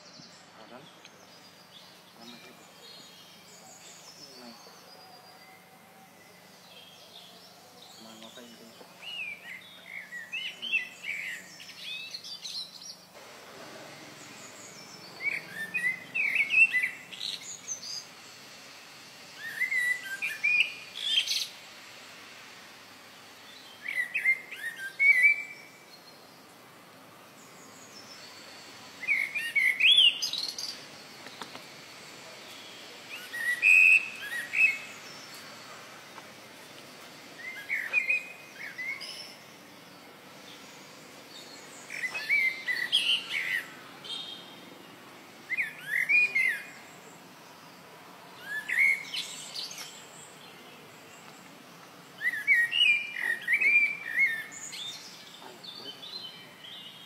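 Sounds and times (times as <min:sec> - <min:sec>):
bird singing whistled notes: 0:00.0 - 0:13.1, 0:14.2 - 0:18.4, 0:19.3 - 0:21.6, 0:23.4 - 0:26.4, 0:27.4 - 0:31.6, 0:32.2 - 0:35.8, 0:37.4 - 0:47.8, 0:48.4 - 0:51.3, 0:52.2 - 0:57.0.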